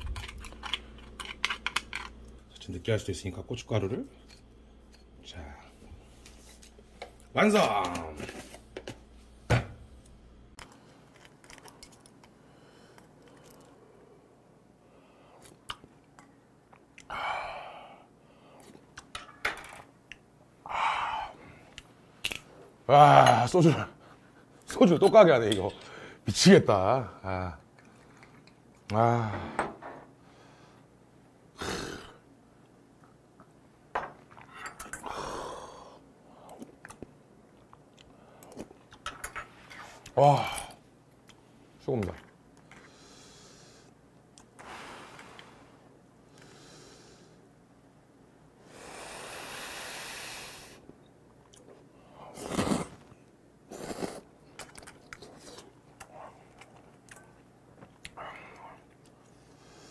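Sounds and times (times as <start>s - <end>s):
breathy exhale: 48.7s - 50.8s
slurping noodles: 52.3s - 53.0s, 53.7s - 54.3s.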